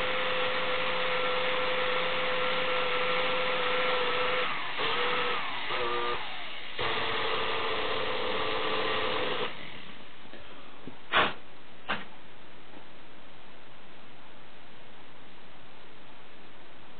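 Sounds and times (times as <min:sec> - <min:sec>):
air compressor motor whining: 0:02.1 - 0:09.9
sharp electrical cracks: 0:11.1 - 0:11.4.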